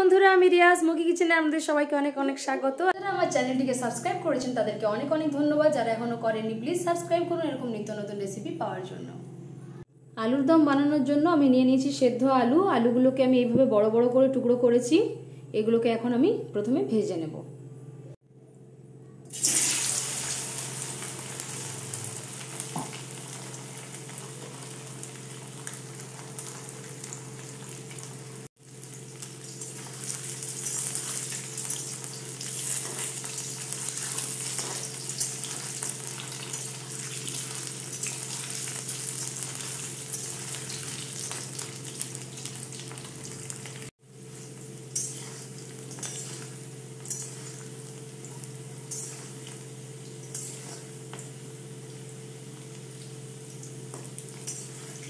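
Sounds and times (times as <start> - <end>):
potatoes sizzling in oil: 19.3 - 55.0
metal spatula stirring: 44.4 - 49.6, 50.2 - 51.2, 53.9 - 55.0.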